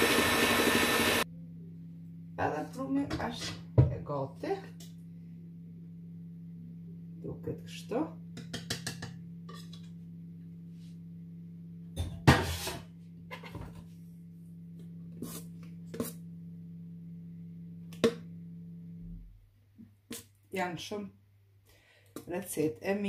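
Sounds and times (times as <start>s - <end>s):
low electrical hum: 1.2s - 23.0s.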